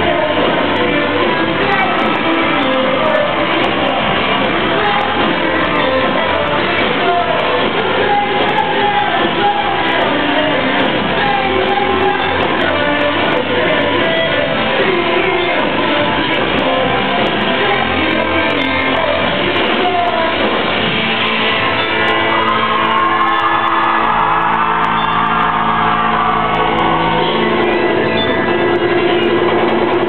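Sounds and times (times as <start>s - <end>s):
live band playing loud music: 0.0s - 30.0s
shouted vocals: 21.7s - 28.1s.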